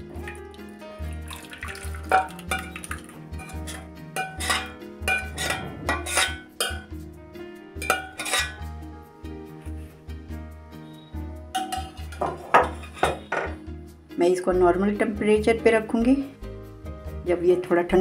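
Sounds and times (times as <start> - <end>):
metal spoon scraping a pot: 2.1 - 7.0, 7.8 - 8.6, 11.6 - 13.6.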